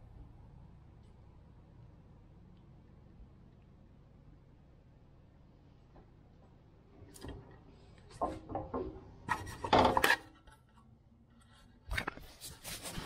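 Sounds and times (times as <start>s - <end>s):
metal clanking and scraping: 8.1s - 10.7s.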